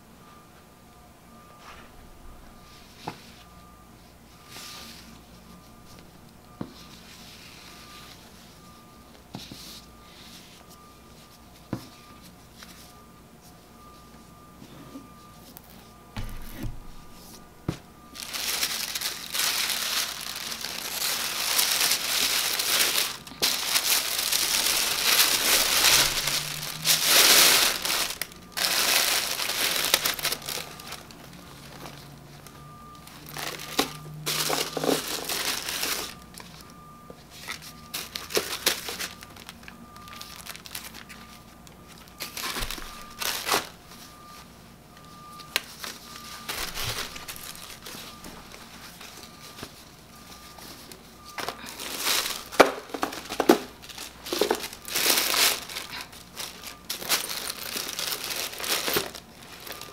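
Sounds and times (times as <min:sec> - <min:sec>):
tissue paper crinkling: 0:18.1 - 0:44.2, 0:45.6 - 0:59.9.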